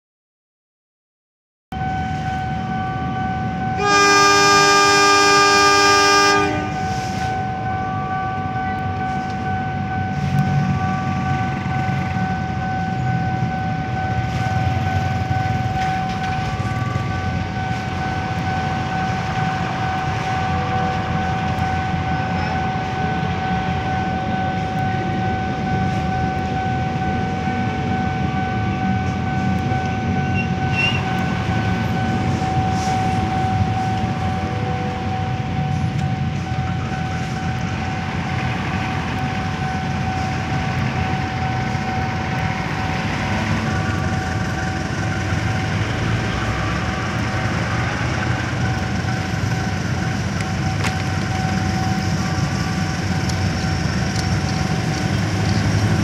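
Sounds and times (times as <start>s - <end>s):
steady high tone: 1.7s - 54.9s
diesel engine rumble: 1.8s - 56.0s
locomotive horn blast: 3.6s - 9.5s.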